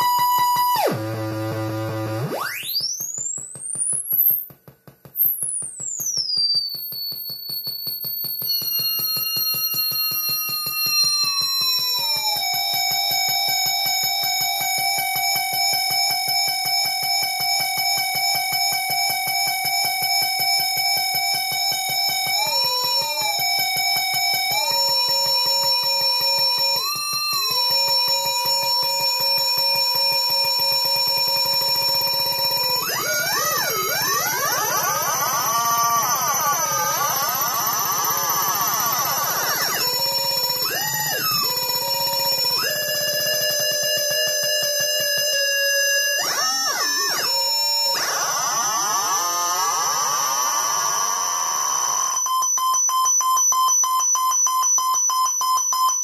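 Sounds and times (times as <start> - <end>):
synthesizer tone with echoing sweeps: 8.4 - 52.2.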